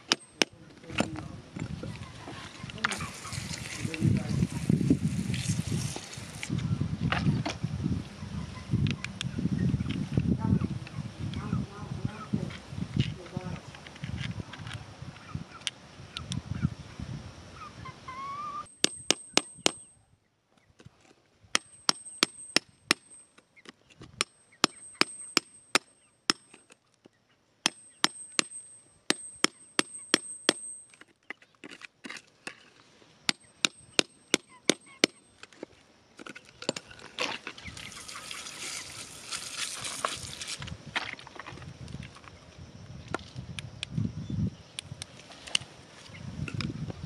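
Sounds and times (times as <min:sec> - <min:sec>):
hard tool tapping on stone: 0:18.7 - 0:19.9, 0:21.6 - 0:23.2, 0:24.2 - 0:26.7, 0:27.6 - 0:31.1, 0:33.3 - 0:35.2
water splashing over stone: 0:37.8 - 0:40.6.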